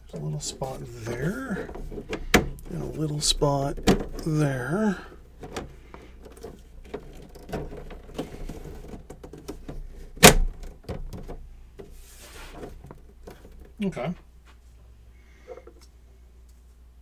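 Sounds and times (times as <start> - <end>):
plastic clicks and rustles: 1.0 - 13.8.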